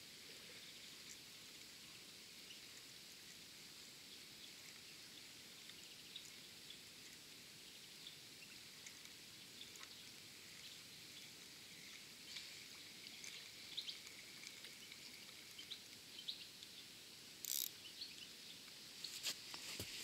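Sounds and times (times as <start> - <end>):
low steady hiss: 0.0 - 20.0
small ticks: 4.4 - 7.3, 8.0 - 16.8, 17.4 - 19.6.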